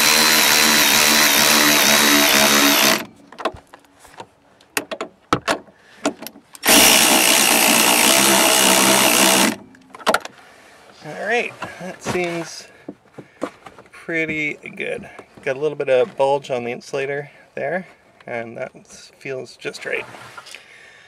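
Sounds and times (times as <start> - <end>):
power ratchet whining: 0.0 - 3.2, 6.6 - 9.7.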